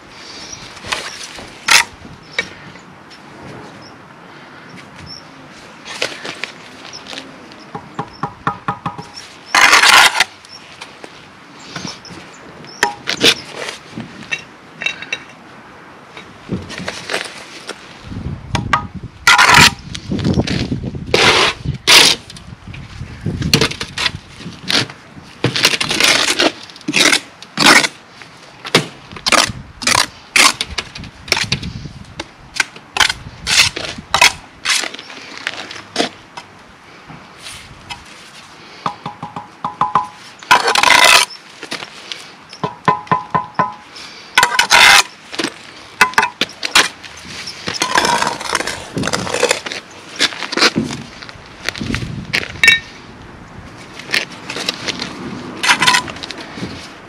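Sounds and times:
hand tools scraping brick: 0:08.9 - 0:10.4, 0:19.3 - 0:19.8, 0:23.5 - 0:28.0, 0:39.9 - 0:41.4, 0:42.6 - 0:51.2, 0:54.0 - 0:56.8.

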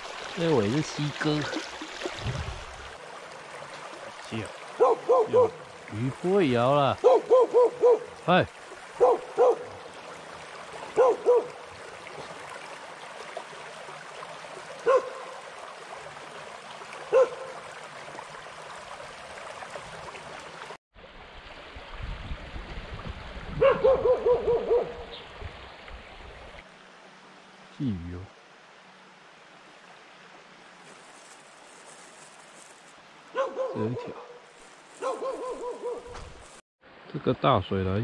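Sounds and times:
shallow stream rushing: 0:00.0 - 0:38.0
dog barking: 0:04.8 - 0:05.6, 0:07.0 - 0:08.1, 0:09.0 - 0:09.7, 0:10.9 - 0:11.6, 0:14.8 - 0:15.4, 0:17.1 - 0:17.6, 0:23.6 - 0:25.1, 0:33.3 - 0:34.4, 0:35.0 - 0:36.2.

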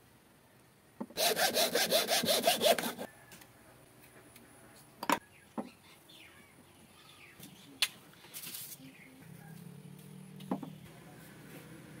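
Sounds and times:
faint bird chirps: 0:05.2 - 0:10.1.

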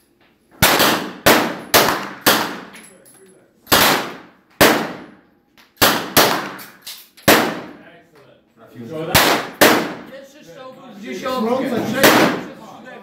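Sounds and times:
handgun shots with echo: 0:00.6 - 0:02.8, 0:03.7 - 0:05.2, 0:05.8 - 0:07.8, 0:09.1 - 0:10.1, 0:12.0 - 0:12.5.

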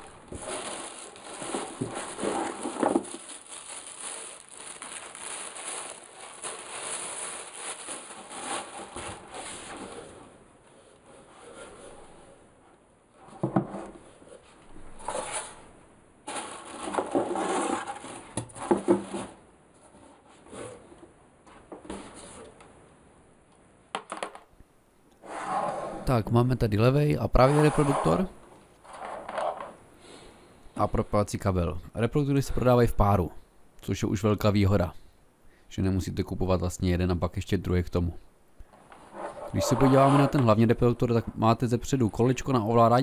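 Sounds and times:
packaging rustling: 0:00.0 - 0:10.2.

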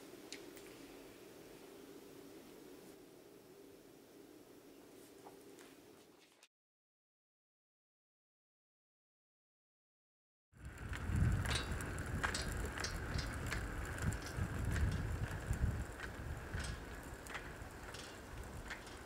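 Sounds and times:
casters rolling on concrete: 0:10.6 - 0:19.0.

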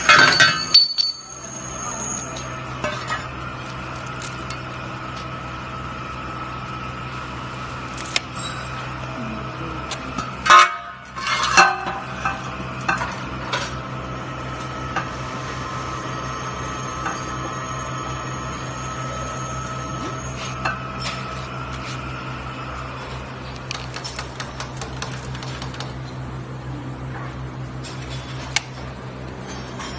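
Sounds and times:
metal tubes clinking: 0:00.0 - 0:03.3
workshop machinery hum: 0:00.0 - 0:29.9.

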